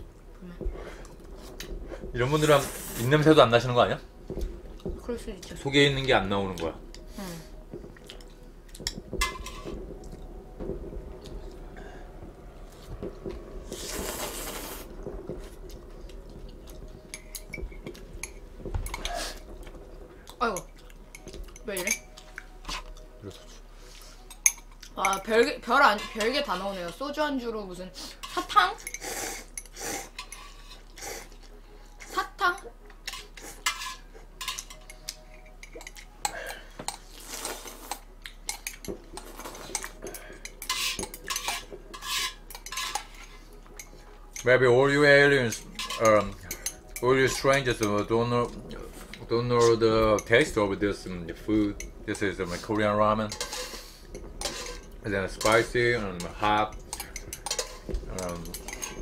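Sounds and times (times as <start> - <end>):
metal utensils clinking on metal lid: 28.2 - 30.9, 32.0 - 37.8, 38.5 - 48.5, 49.2 - 59.0.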